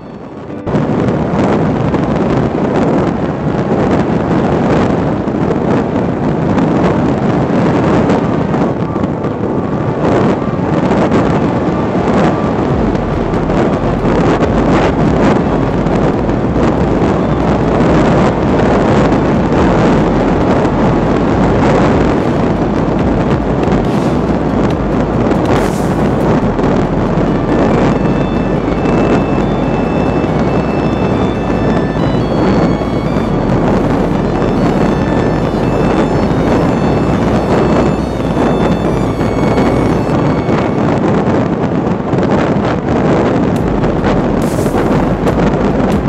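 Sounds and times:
wind rushing on microphone: 0.0s - 46.0s
electric propeller motor: 12.8s - 41.0s.

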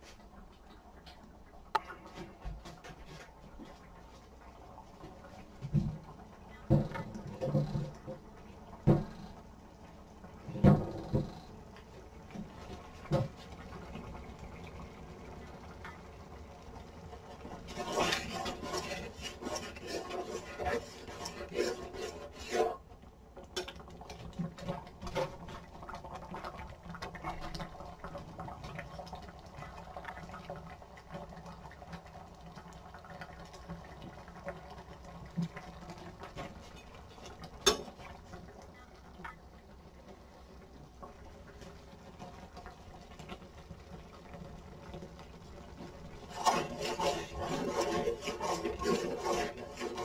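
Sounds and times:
utensil scraping and clinking cookware: 17.6s - 22.8s, 46.3s - 50.0s.

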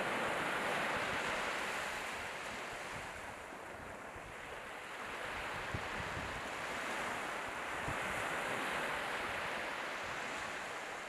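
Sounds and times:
small waves breaking on beach: 0.0s - 11.0s.

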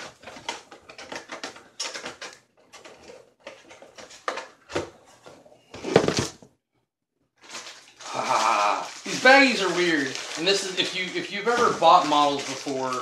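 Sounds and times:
plastic bags crinkling: 7.4s - 13.0s.

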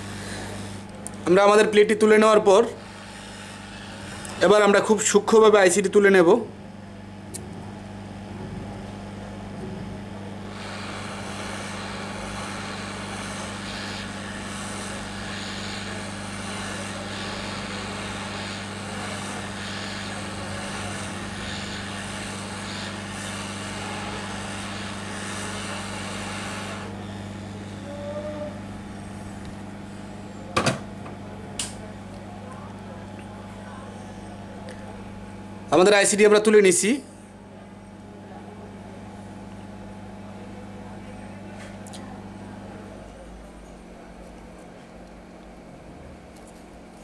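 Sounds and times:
hot air blower hissing: 0.0s - 6.4s, 10.0s - 30.8s.

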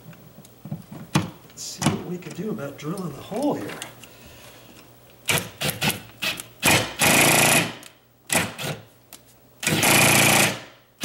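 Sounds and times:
power drill bursts: 5.3s - 8.8s, 9.6s - 10.7s.

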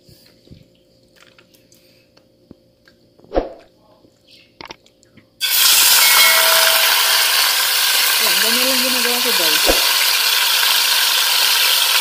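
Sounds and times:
oil sizzling in a frying pan: 5.4s - 12.0s.

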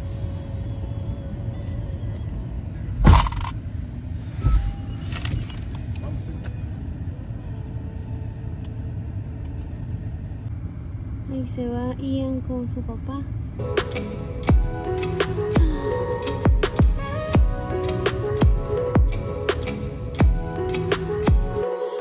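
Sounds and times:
car engine idling: 0.0s - 19.2s.

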